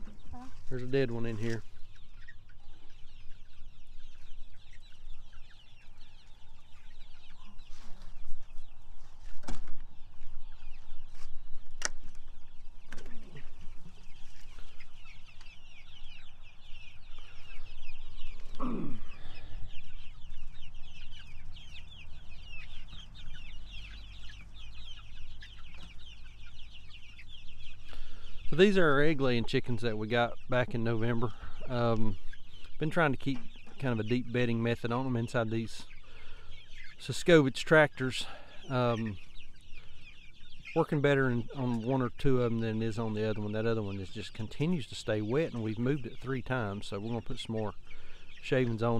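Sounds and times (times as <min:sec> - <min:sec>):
chicks cheeping: 0:00.0 - 0:48.9
low falling bird call: 0:09.4 - 0:28.8.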